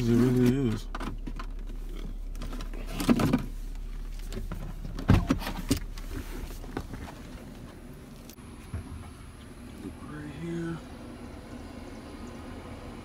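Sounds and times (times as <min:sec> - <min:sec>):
car door thumping open: 0:04.4 - 0:05.9.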